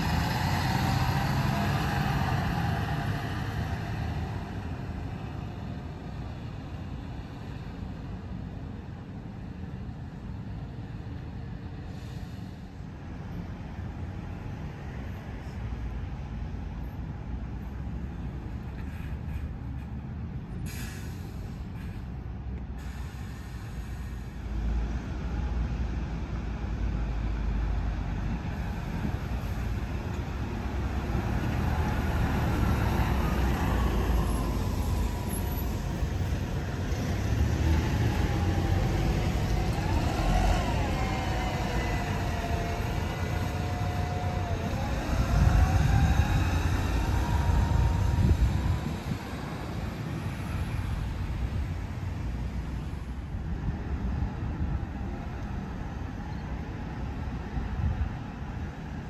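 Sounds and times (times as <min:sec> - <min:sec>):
bus engines rumbling: 0:00.0 - 0:59.0
whine gliding in pitch: 0:37.8 - 0:50.8.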